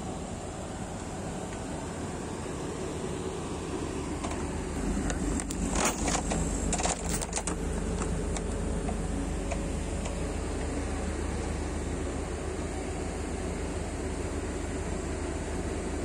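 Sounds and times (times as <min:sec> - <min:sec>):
diesel engine idling: 0:00.0 - 0:16.0
metal chain clinking and rattling: 0:05.4 - 0:07.6.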